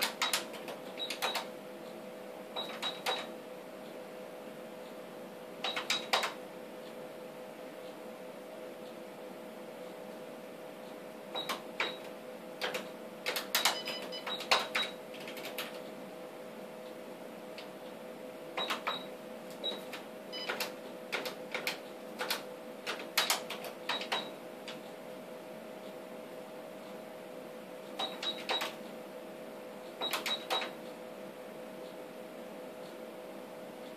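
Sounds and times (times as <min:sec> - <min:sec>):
steady hum: 0:00.0 - 0:33.9
console keys clicking: 0:12.6 - 0:15.8, 0:30.0 - 0:30.7.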